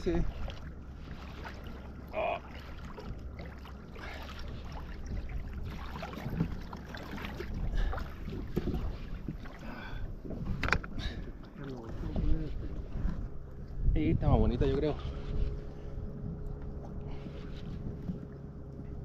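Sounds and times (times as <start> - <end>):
water lapping against kayak hull: 0.0 - 19.0
wind rumble on microphone: 4.1 - 19.0.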